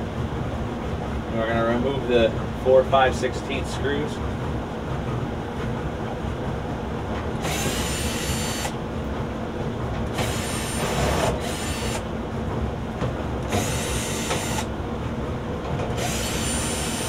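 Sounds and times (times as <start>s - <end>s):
cordless drill whirring: 7.4s - 8.8s, 10.1s - 12.0s, 13.5s - 14.7s, 16.0s - 17.0s.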